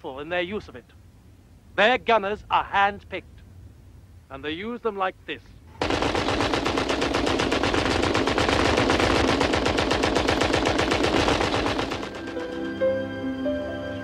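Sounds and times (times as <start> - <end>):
machine guns firing automatic bursts: 5.8 - 12.6
music: 12.0 - 14.0.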